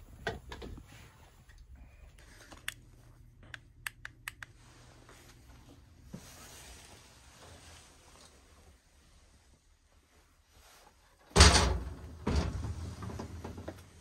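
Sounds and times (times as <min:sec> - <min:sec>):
faint low hum: 0:00.0 - 0:14.0
light sharp clicks and taps: 0:02.5 - 0:04.6.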